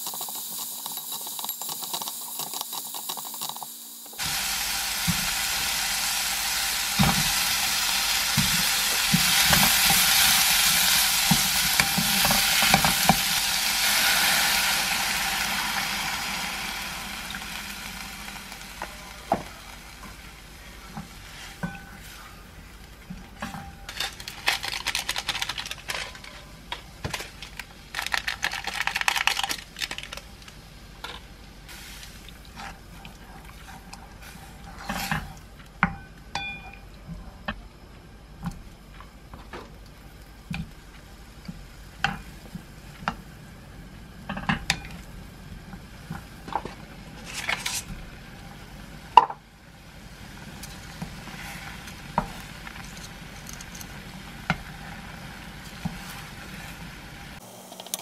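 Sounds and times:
spatula scraping a frying pan: 0:33.6 - 0:35.3, 0:51.0 - 0:53.2.

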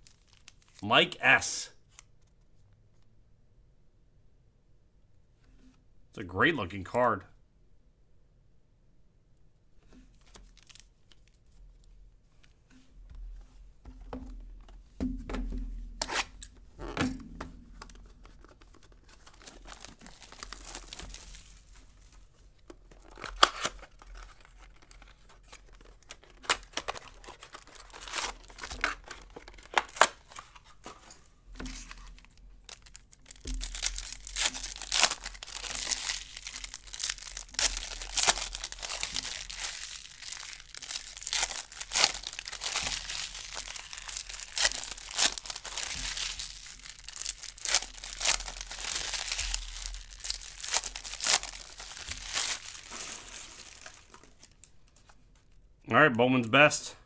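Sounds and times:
wrapping tearing and crinkling: 0:00.0 - 0:00.8, 0:10.2 - 0:11.6, 0:17.7 - 0:55.5.

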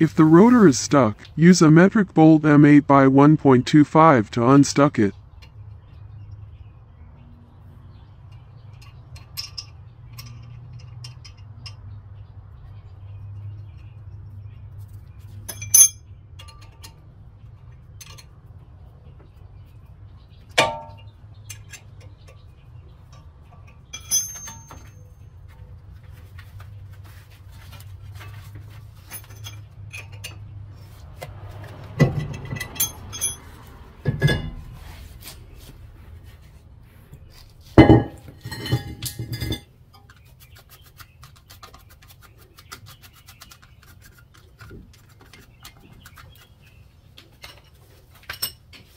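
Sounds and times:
metallic clinks of hand tools: 0:15.5 - 0:16.8, 0:23.9 - 0:25.1, 0:32.4 - 0:33.6
sharp metal clanks ringing: 0:15.5 - 0:16.8, 0:23.9 - 0:25.2, 0:32.2 - 0:33.6.

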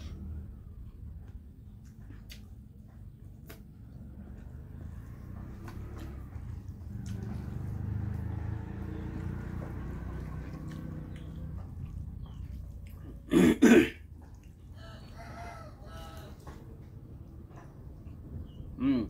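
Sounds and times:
man coughing: 0:13.3 - 0:14.0.

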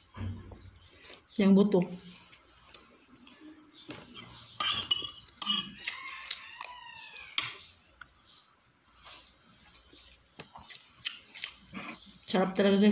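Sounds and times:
cutlery scraping on a plate: 0:04.2 - 0:06.1, 0:07.3 - 0:07.7.

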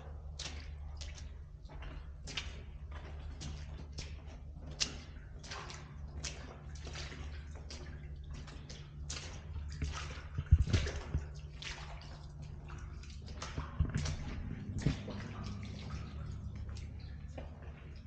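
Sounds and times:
footsteps splashing through water: 0:00.0 - 0:18.0
steady low hum: 0:00.0 - 0:18.0.

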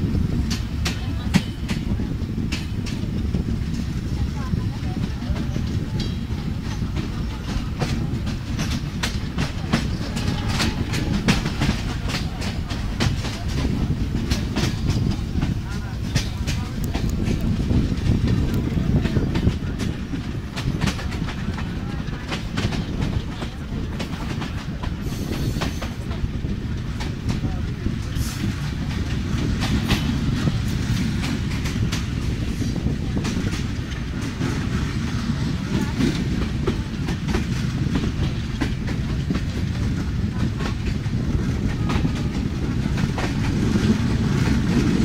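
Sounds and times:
train rumbling: 0:00.0 - 0:45.0
wheels clicking over rails: 0:00.1 - 0:45.0.

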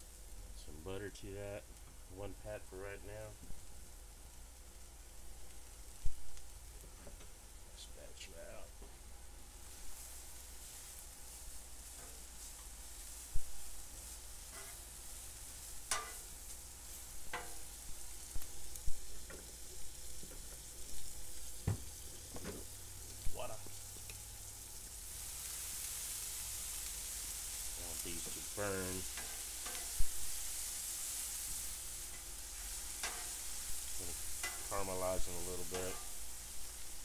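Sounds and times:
onions sizzling on griddle: 0:00.0 - 0:37.0
metal spatula scraping steel: 0:14.5 - 0:14.9, 0:15.9 - 0:16.3, 0:29.1 - 0:30.0, 0:32.1 - 0:33.5, 0:34.4 - 0:34.7.

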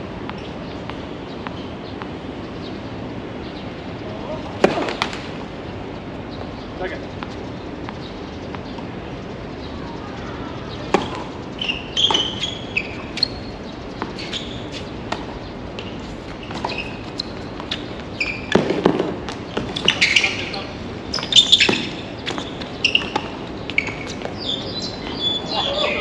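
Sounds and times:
shoe squeaks on court: 0:11.0 - 0:15.0, 0:15.8 - 0:18.8, 0:19.5 - 0:26.0.

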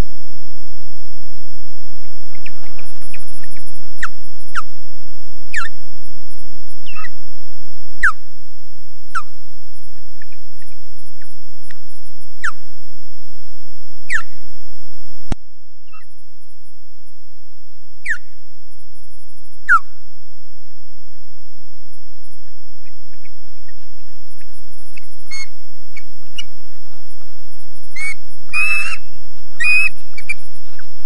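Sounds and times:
high-pitched electronic whine: 0:00.0 - 0:31.0
bird whistled alarm calls: 0:05.5 - 0:05.8, 0:06.8 - 0:07.2, 0:08.0 - 0:08.2, 0:12.4 - 0:12.6, 0:14.1 - 0:14.4, 0:15.9 - 0:16.1, 0:18.0 - 0:18.3, 0:19.6 - 0:19.9, 0:24.9 - 0:26.5, 0:27.9 - 0:30.4
click: 0:11.6 - 0:11.8.

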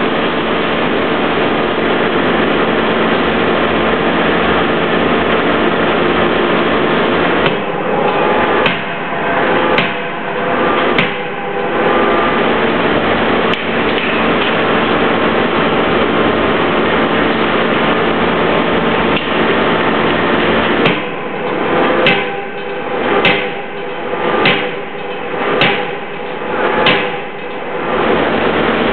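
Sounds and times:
loud steady machinery noise: 0:00.0 - 0:28.9
forging hammer striking hot steel: 0:06.0 - 0:28.9.

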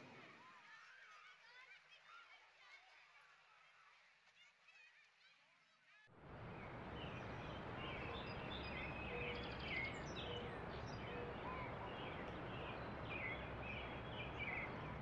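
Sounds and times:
low background rumble: 0:06.2 - 0:15.0
small birds chirping: 0:06.2 - 0:15.0.

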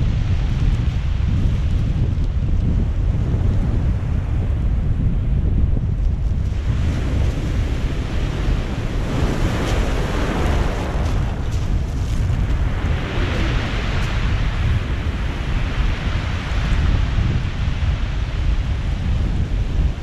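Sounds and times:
wind buffeting microphone: 0:00.0 - 0:20.0
surf breaking on pebble beach: 0:06.4 - 0:20.0.

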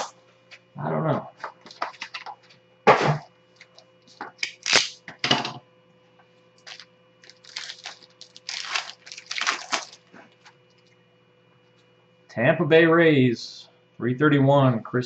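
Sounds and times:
foil wrapper tearing: 0:04.4 - 0:05.0, 0:06.6 - 0:10.9.

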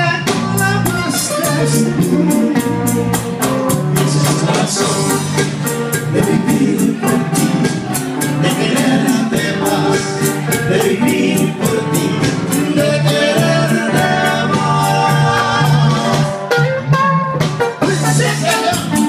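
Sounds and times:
strummed acoustic guitars: 0:00.0 - 0:19.0
people singing together: 0:03.9 - 0:16.5, 0:17.8 - 0:19.0.

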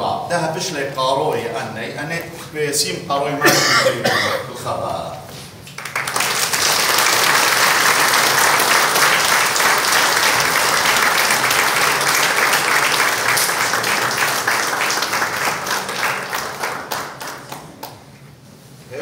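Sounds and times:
congregation applauding: 0:05.7 - 0:18.1.

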